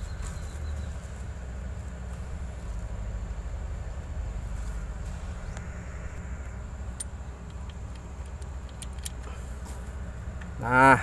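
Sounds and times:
low background rumble: 0.0 - 11.0
light metallic clicks and taps: 6.4 - 9.3.

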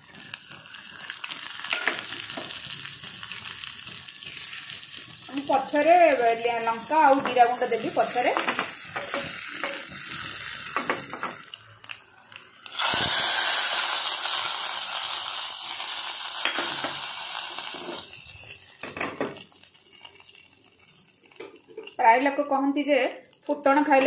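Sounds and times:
spices sizzling in a pan: 0.0 - 24.0
loud hiss: 12.7 - 18.1.

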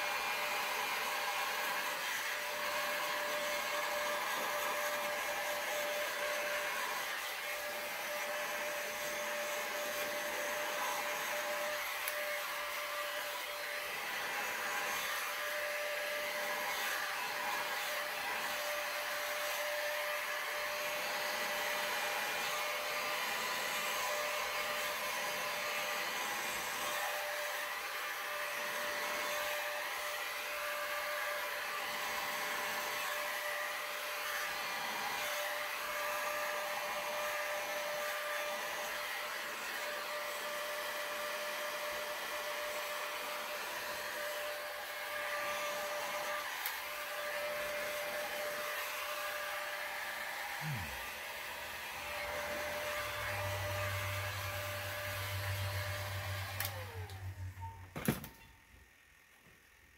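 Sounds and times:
heat gun blowing with whine: 0.0 - 59.9.

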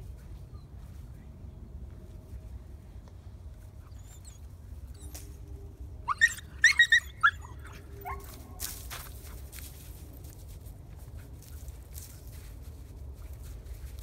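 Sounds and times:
puppy yipping: 3.8 - 5.3, 6.1 - 8.6.

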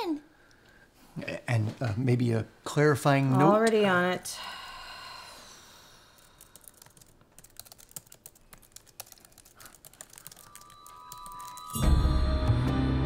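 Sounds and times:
laptop keyboard typing: 6.1 - 11.8.

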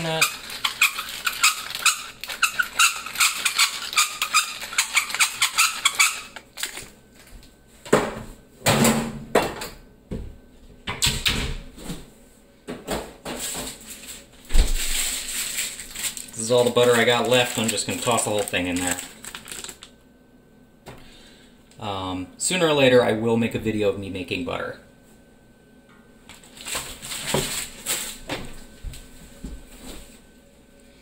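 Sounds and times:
pepper mill grinding: 0.0 - 6.9, 15.0 - 19.9.

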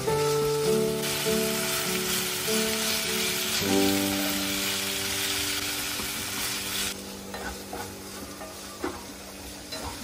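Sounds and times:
vegetables sizzling in a pan: 0.0 - 10.0
spatula scraping and tapping a pan: 7.3 - 10.0.

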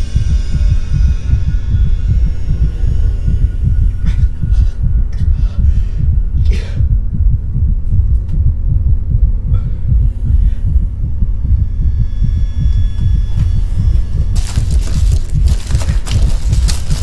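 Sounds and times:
low heavy throbbing: 0.0 - 17.0.

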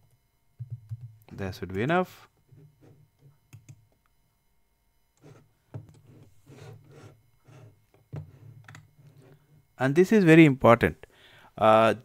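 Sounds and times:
computer keyboard and mouse clicks: 3.5 - 3.8.

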